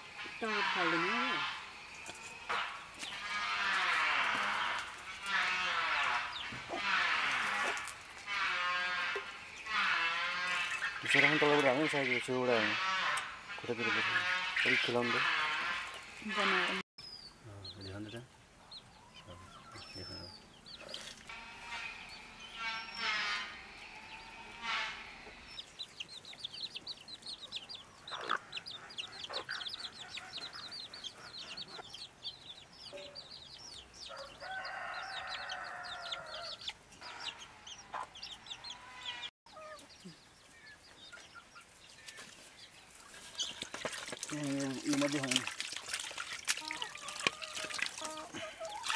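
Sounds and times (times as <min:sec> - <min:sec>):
hens clucking: 0:00.2 - 0:16.8, 0:26.8 - 0:32.0, 0:35.5 - 0:40.1, 0:43.4 - 0:48.9
small birds chirping rapidly: 0:00.3 - 0:23.4, 0:25.3 - 0:48.9.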